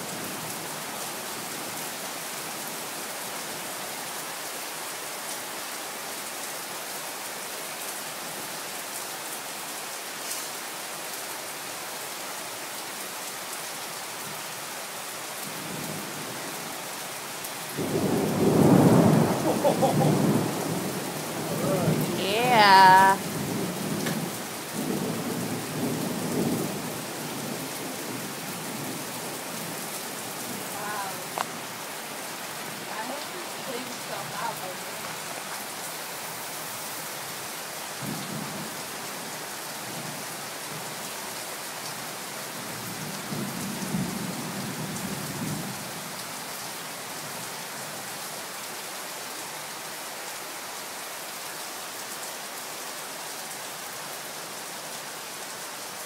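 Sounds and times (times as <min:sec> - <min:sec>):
heavy rain: 0:00.0 - 0:56.0
thunder rumbling: 0:17.8 - 0:22.2.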